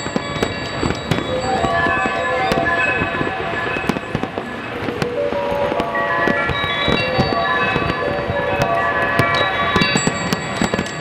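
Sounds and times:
fireworks popping and bursting: 0:00.0 - 0:11.0
ringing metallic tones: 0:00.0 - 0:11.0.

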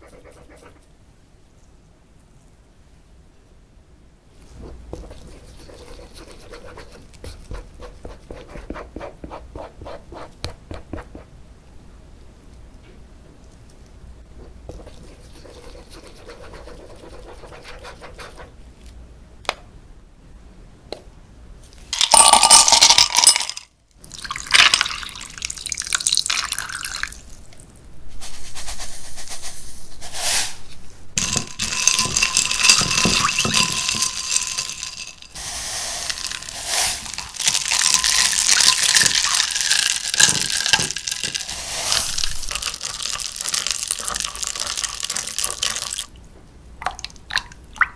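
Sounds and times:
ice cubes clattering into glass: 0:22.0 - 0:25.5, 0:31.2 - 0:35.4, 0:36.1 - 0:46.1
ice knocking against glass: 0:31.2 - 0:35.4, 0:37.1 - 0:41.5.

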